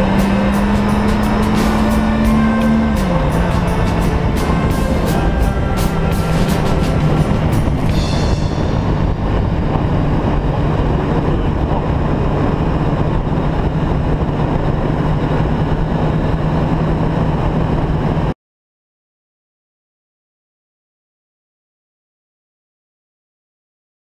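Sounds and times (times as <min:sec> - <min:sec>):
motorcycle engine cruising: 0:00.0 - 0:18.4
wind and road noise: 0:00.0 - 0:18.4.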